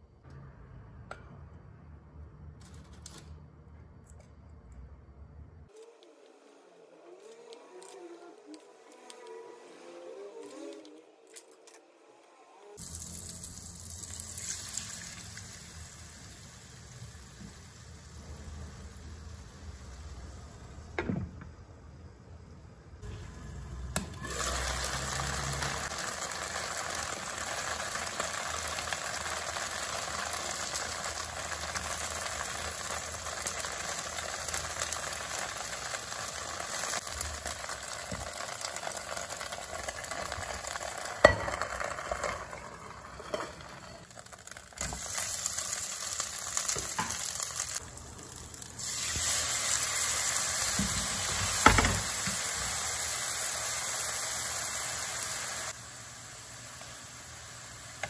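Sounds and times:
dumplings sizzling in oil: 12.8s - 21.0s, 23.0s - 58.0s.

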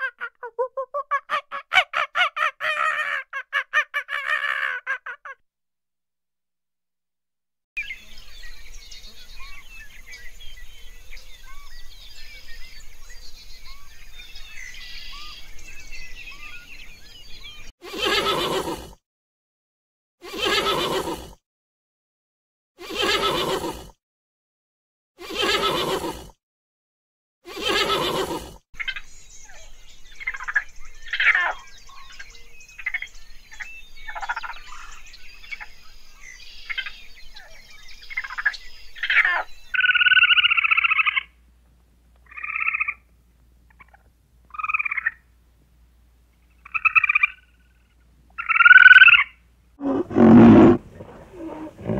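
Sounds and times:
horse whinnying: 17.9s - 18.9s, 20.2s - 21.3s, 22.8s - 23.9s, 25.2s - 26.3s, 27.5s - 28.5s, 49.8s - 51.9s
high chirping calls: 48.4s - 51.9s.

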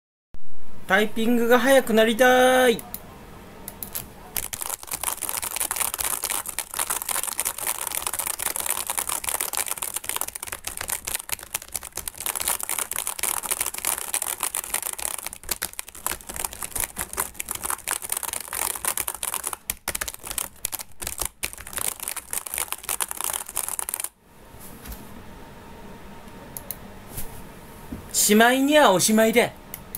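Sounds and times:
fast keyboard typing: 3.8s - 24.1s.

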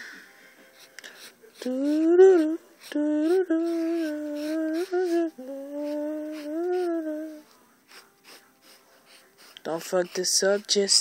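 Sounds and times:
person humming: 1.6s - 7.4s.

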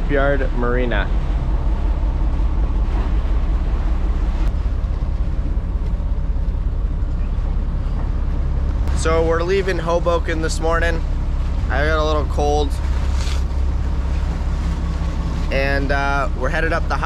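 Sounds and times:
boat engine low drone: 0.0s - 17.0s.

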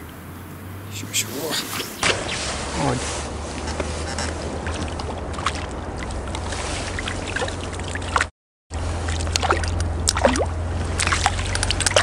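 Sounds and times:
fish splashing at water surface: 4.6s - 8.3s, 8.9s - 12.0s.

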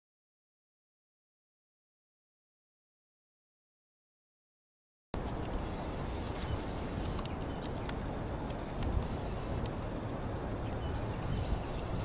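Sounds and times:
wind buffeting microphone: 5.2s - 12.0s
faint clicks: 6.3s - 9.8s.

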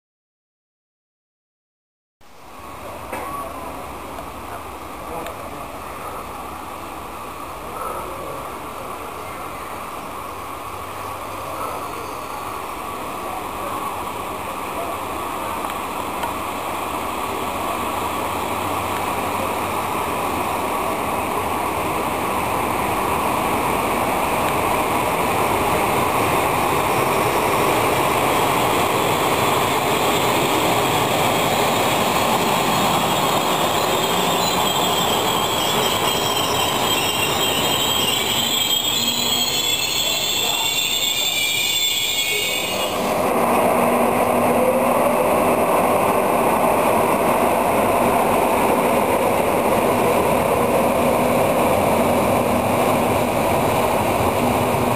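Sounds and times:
train wheels on rails: 2.8s - 54.9s
high metallic wheel squeal: 32.6s - 43.1s.

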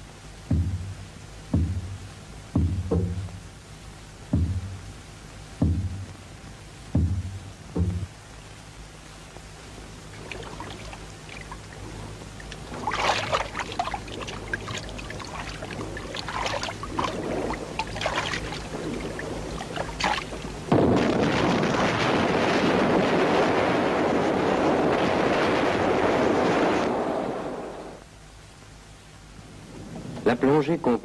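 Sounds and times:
water splashing against boat: 10.0s - 27.0s
loud rush of water blast: 10.2s - 28.0s.

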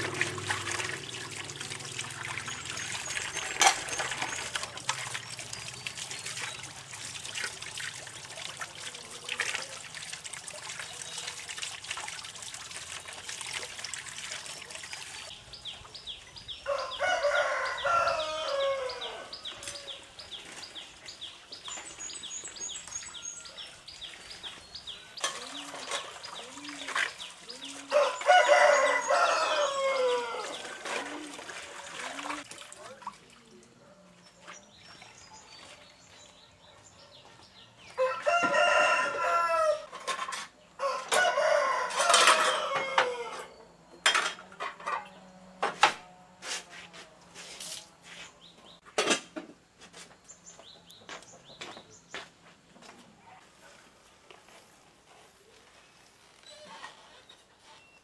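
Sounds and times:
rooster crowing: 16.6s - 20.0s, 27.9s - 30.8s, 38.0s - 39.9s, 40.8s - 43.5s.

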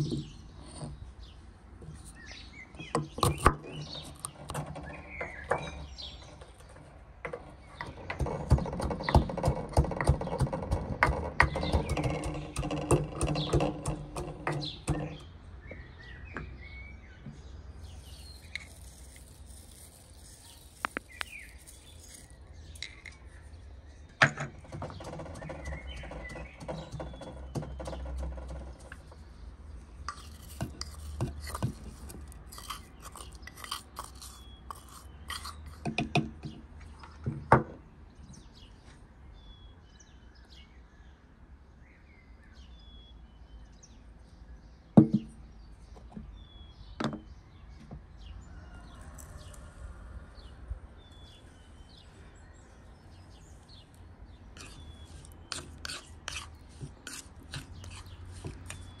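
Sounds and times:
birds chirping: 0.0s - 59.0s
pestle scraping: 2.8s - 15.3s, 17.8s - 23.2s, 24.5s - 29.3s, 30.0s - 36.3s, 54.6s - 59.0s
wooden pestle knocking in mortar: 7.8s - 15.2s, 24.3s - 28.9s.

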